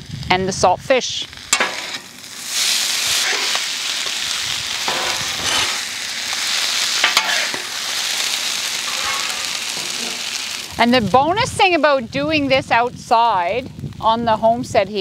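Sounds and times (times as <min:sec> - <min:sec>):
food sizzling on griddle: 0:00.0 - 0:15.0
metal spatulas scraping griddle: 0:03.1 - 0:03.7, 0:04.9 - 0:05.9, 0:07.0 - 0:10.5.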